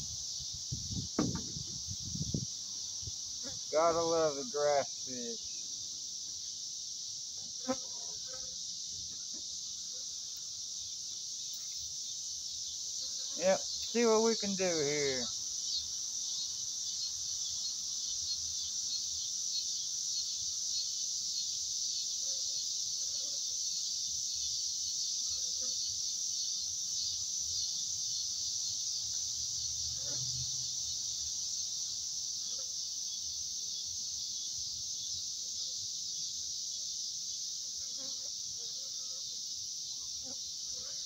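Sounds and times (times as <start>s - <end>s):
insects shrilling: 0.0s - 41.0s.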